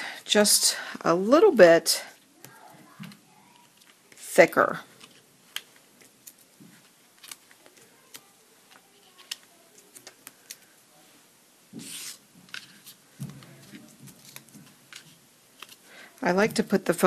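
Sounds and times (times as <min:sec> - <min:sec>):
paper rustle: 0:02.3 - 0:04.2, 0:04.9 - 0:10.7, 0:11.8 - 0:15.9
soft thumps of paper handled: 0:11.7 - 0:15.2.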